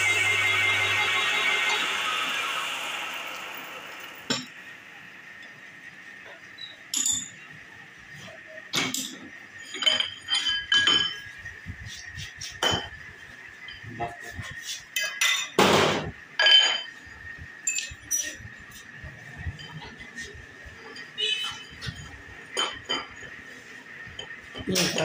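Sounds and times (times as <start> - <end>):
metal clinks and knocks: 6.9 - 7.4, 8.7 - 11.4, 17.6 - 18.6.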